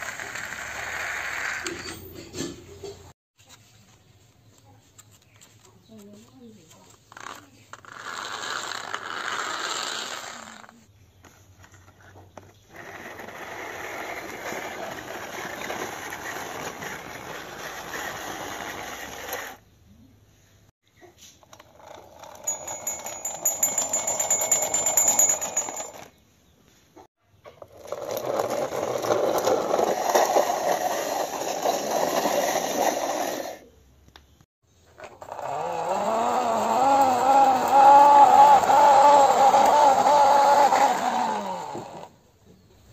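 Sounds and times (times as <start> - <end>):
plastic wheels rolling on concrete: 0.0 - 19.6, 21.0 - 26.2, 27.3 - 42.9
thin high squeak: 1.2 - 2.4.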